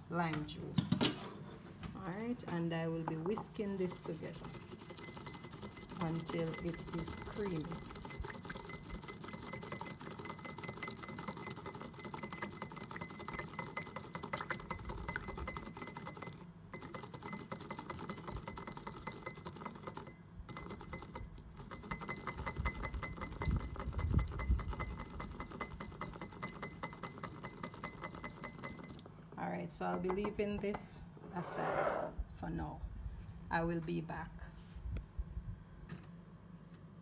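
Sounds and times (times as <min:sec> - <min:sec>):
whisk ticking against glass bowl: 0:02.9 - 0:29.1, 0:29.8 - 0:30.8.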